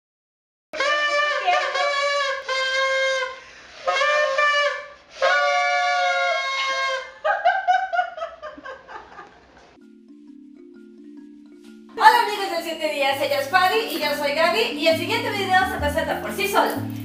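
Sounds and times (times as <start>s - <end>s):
paper party horns buzzing: 0.8s - 7.1s.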